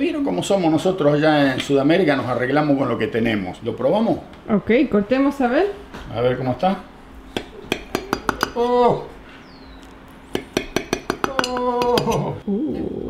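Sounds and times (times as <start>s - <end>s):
knife clicking against ceramic dish: 10.4s - 12.3s.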